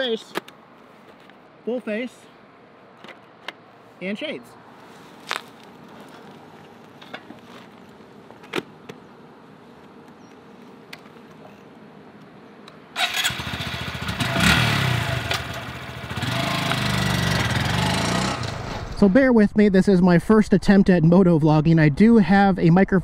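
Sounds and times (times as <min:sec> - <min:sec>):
motorcycle engine revving: 0:13.0 - 0:19.0.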